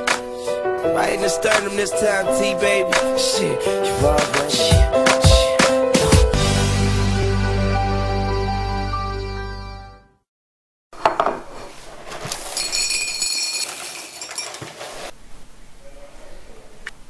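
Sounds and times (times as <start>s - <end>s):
theme music: 0.0s - 10.1s
dishes and cutlery clinking: 12.2s - 15.1s.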